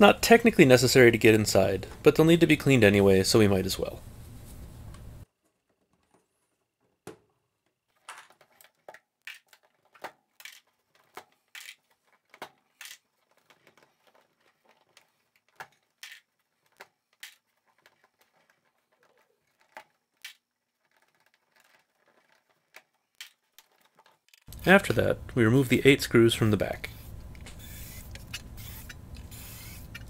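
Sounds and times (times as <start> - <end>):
plastic knobs clicking off shafts: 26.7 - 30.0.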